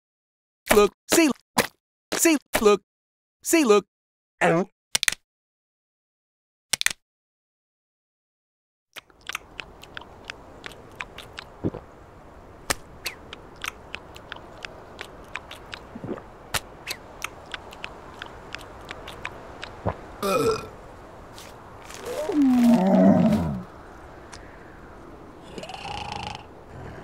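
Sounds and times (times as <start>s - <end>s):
cartoon crunching bites: 9.0s - 11.8s, 13.1s - 16.2s, 16.9s - 19.8s
wind-like hiss: 9.4s - 27.0s.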